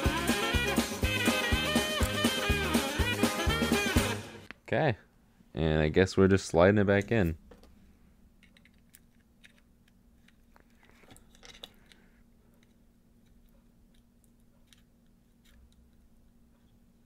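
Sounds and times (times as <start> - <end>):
faint steady hum: 4.4 - 17.0
small clicks and scrapes of handling: 8.4 - 16.8.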